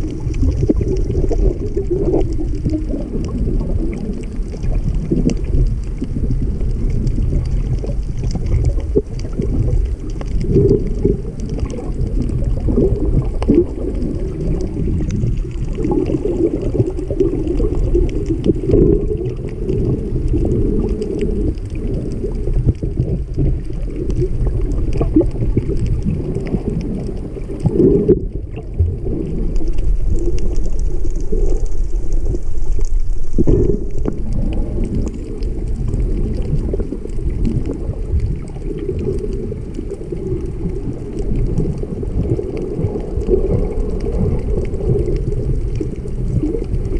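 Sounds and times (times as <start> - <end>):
faint clicks: 0.0 - 46.9
muffled underwater churning: 0.0 - 46.9.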